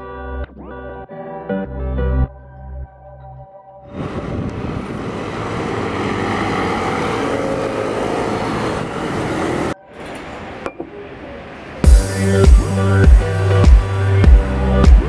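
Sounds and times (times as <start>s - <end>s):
background music: 0.0s - 4.7s, 6.6s - 15.0s
cars and scooters driving past: 3.9s - 14.8s.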